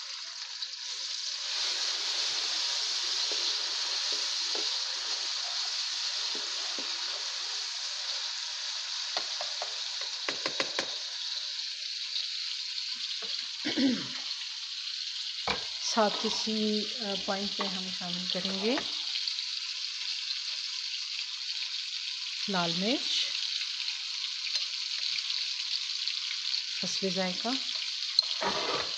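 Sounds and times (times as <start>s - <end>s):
vegetables sizzling in hot oil: 0.0s - 28.9s
spatula clicking against pan: 9.2s - 11.0s.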